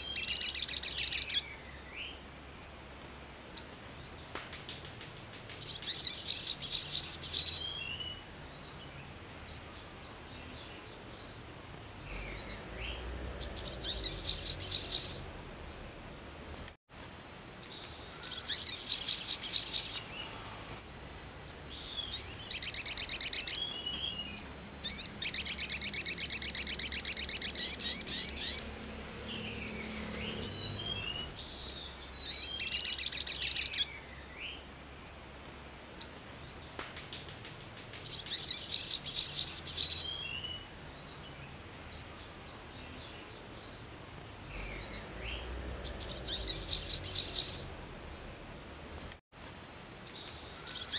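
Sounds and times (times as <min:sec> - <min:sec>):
bird singing fast high trills: 0:00.0 - 0:02.2, 0:05.6 - 0:08.6, 0:11.9 - 0:16.1, 0:17.6 - 0:20.2, 0:21.2 - 0:34.1, 0:38.0 - 0:41.1, 0:44.4 - 0:48.5.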